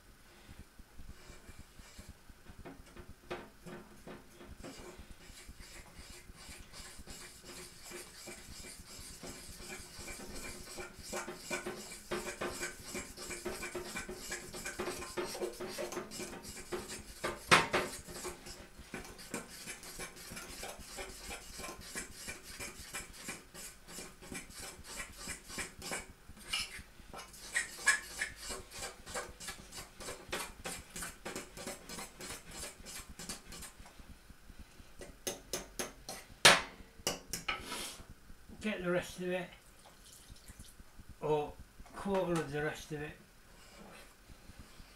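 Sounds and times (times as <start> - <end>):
fork whisking batter in bowl: 4.5 - 34.0.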